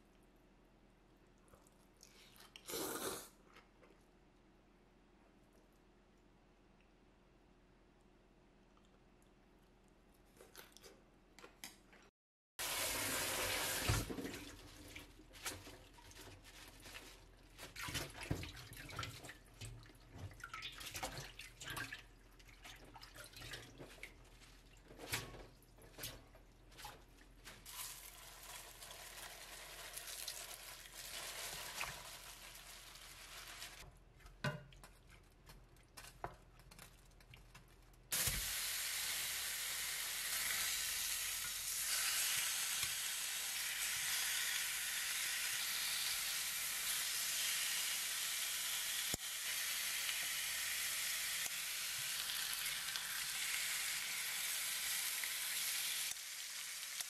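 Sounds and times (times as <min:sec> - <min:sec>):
greens rinsed in metal colander: 0:12.6 - 0:44.8
meat sizzling in frying pan: 0:38.2 - 0:57.0.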